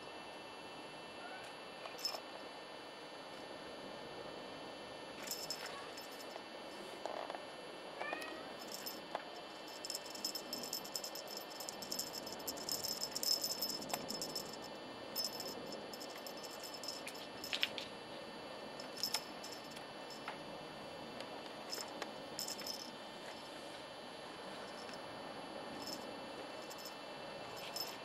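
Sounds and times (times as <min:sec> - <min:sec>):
cat toy beads rattling and clicking: 0:05.2 - 0:06.4, 0:08.6 - 0:17.8, 0:18.8 - 0:20.2, 0:21.7 - 0:22.9, 0:25.8 - 0:27.0.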